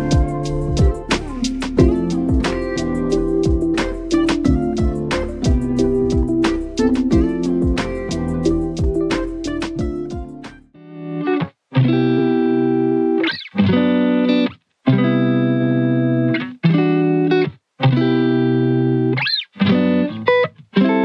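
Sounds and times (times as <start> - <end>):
long held music chords: 0.0 - 10.6.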